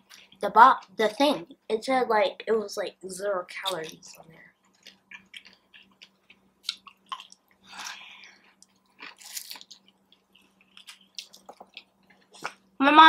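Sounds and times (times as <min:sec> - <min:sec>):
wet mouth clicks and chewing: 0:04.6 - 0:12.6.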